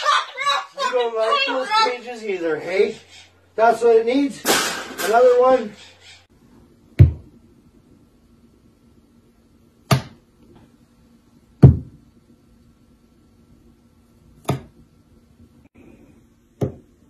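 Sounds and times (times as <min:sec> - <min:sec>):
fruit knocked on countertop: 0:07.0 - 0:07.2, 0:09.9 - 0:10.2, 0:11.6 - 0:12.0, 0:14.4 - 0:14.7, 0:16.6 - 0:16.8.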